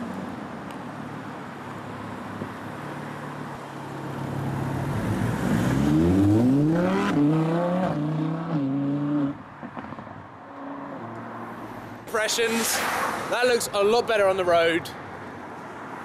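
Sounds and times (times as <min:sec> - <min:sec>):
sports car accelerating past: 0:04.2 - 0:11.7.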